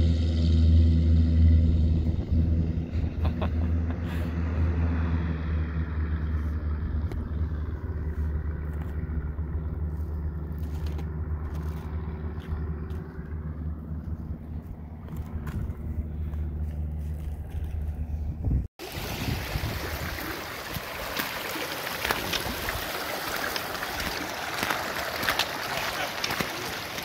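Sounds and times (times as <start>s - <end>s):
propeller plane engine drone: 0.0s - 19.1s.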